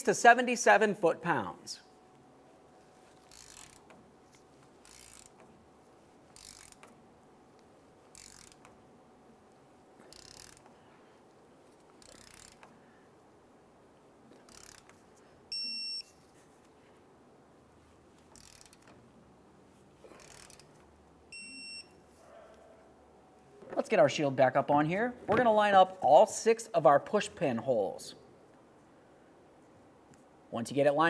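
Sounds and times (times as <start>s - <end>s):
ratcheting torque wrench: 3.2s - 4.0s, 4.8s - 5.5s, 6.3s - 6.9s, 8.1s - 8.8s, 10.0s - 10.8s, 12.0s - 12.7s, 14.4s - 15.0s, 18.3s - 18.9s, 20.1s - 20.8s
electronic beep: 21.4s - 21.9s.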